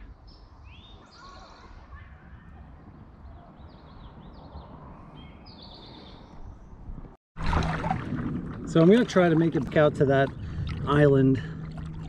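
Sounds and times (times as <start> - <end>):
songbirds chirping: 0.0 - 7.1
low uneven rumble: 7.4 - 12.0.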